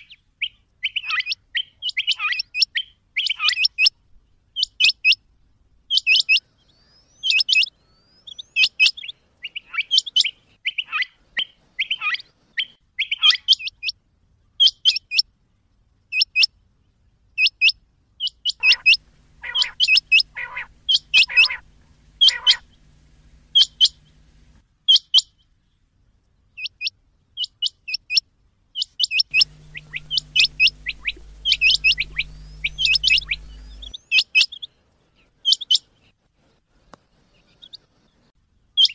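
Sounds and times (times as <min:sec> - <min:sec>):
quail calling: 0:18.5 - 0:24.6, 0:29.0 - 0:34.4.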